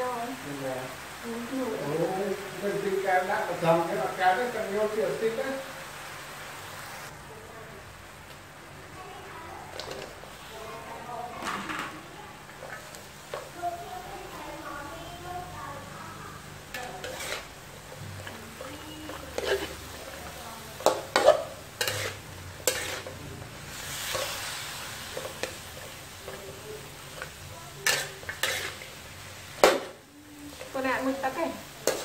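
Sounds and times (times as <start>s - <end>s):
hot oil sizzling: 0.0s - 32.0s
metal ladle scraping wok: 16.7s - 32.0s.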